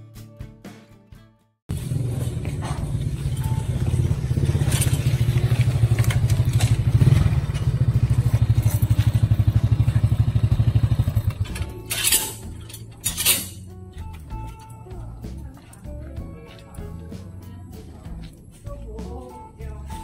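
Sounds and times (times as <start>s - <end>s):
motorcycle engine running: 1.7s - 13.6s.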